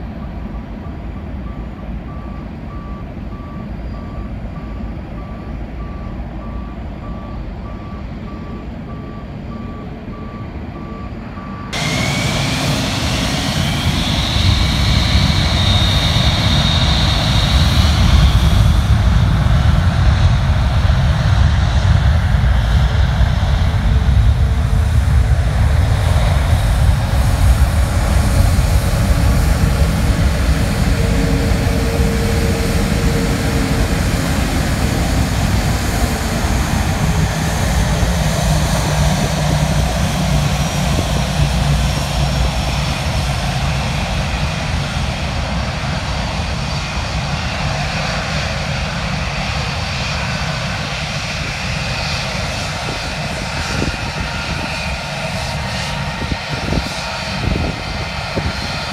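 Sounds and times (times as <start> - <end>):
jet engines taxiing: 0.0 - 58.9
reversing alarm beeping: 0.2 - 18.6
distant jet rumble: 3.4 - 58.9.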